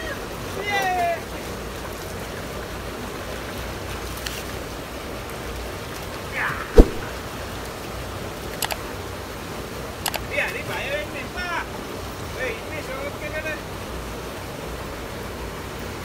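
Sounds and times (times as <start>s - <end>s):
water sloshing and splashing: 3.2s - 7.7s
sharp thump: 6.8s - 7.1s.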